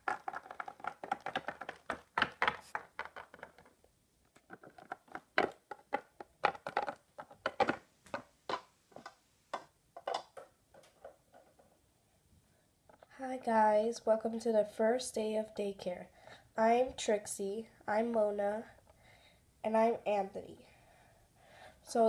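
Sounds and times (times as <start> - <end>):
plastic toy figures tapping on wood: 0.0 - 3.7, 4.4 - 11.6.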